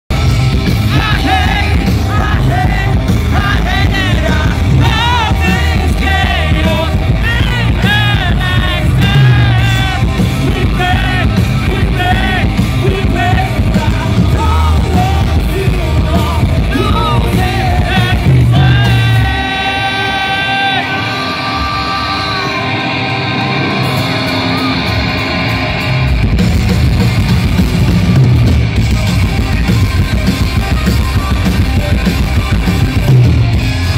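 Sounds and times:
live rock band playing: 0:00.1 - 0:33.9
person singing and yelling: 0:00.9 - 0:23.8.

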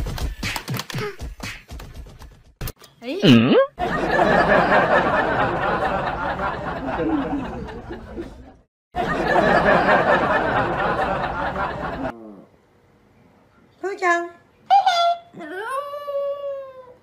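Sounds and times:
audience laughter: 0:03.8 - 0:12.1.

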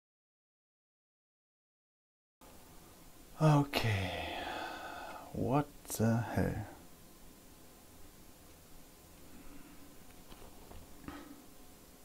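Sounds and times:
faint background hiss: 0:02.4 - 0:12.0.

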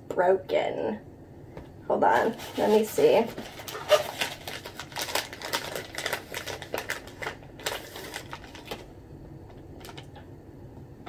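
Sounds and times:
packaging rustling in cardboard box: 0:02.1 - 0:08.9.

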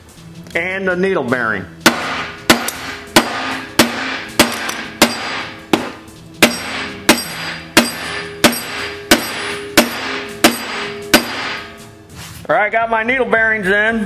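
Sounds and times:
hammer striking metal: 0:01.8 - 0:12.0.

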